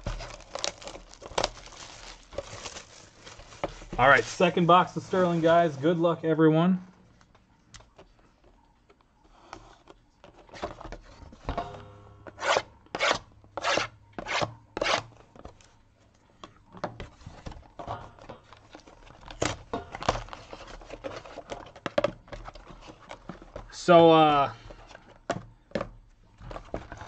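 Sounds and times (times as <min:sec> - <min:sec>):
wrapper and cardboard tearing: 0:00.0 - 0:05.3, 0:18.4 - 0:23.8
rustling: 0:00.0 - 0:06.2, 0:16.9 - 0:23.9.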